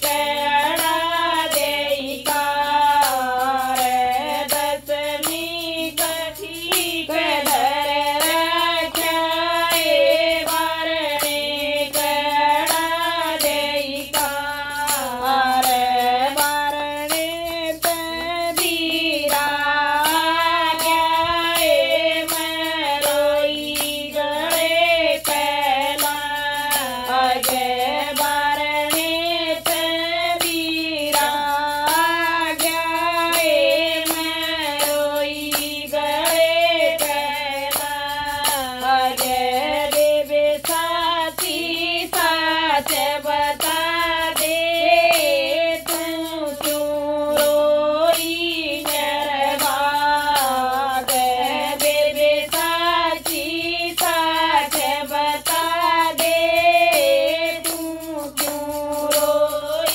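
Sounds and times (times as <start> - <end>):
woman singing: 0.0 - 59.9.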